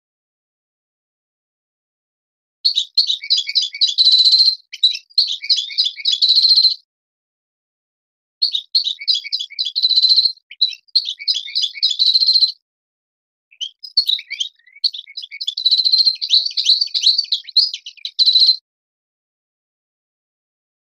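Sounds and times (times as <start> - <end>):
goldfinch singing: 2.7 - 6.8, 8.4 - 12.6, 13.5 - 18.6.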